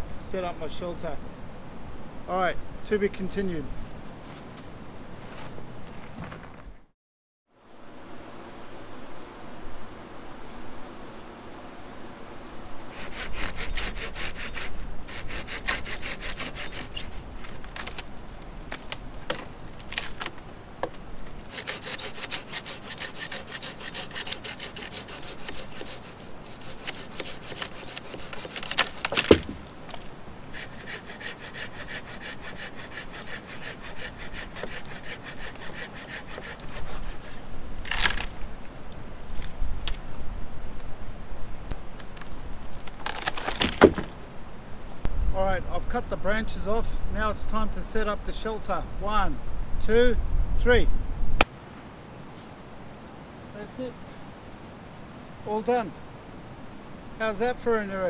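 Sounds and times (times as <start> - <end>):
hand saw cutting branches: 12.9 - 18.1, 21.2 - 38.3
wood cracking: 16.8 - 22.3, 26.7 - 30.2, 37.8 - 38.4, 42.0 - 44.2.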